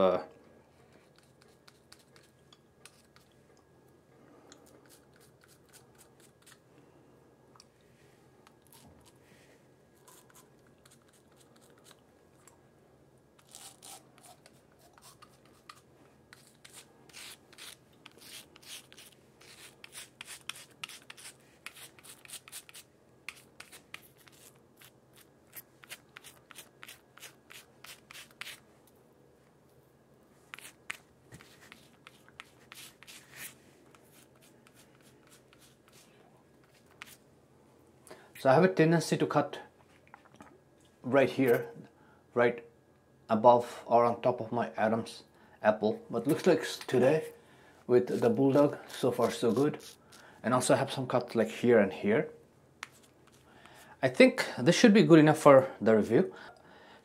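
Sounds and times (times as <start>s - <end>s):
razor scraping stubble: 13.4s - 28.6s, 48.1s - 50.2s.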